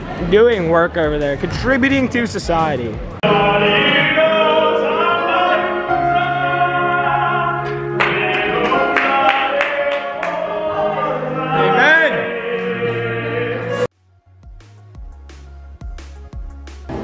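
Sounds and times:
man singing: 3.2s - 13.9s.

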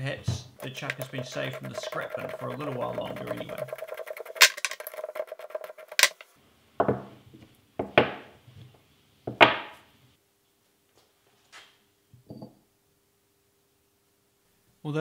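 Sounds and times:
metal jaws knocking on wood: 0.6s - 6.2s.

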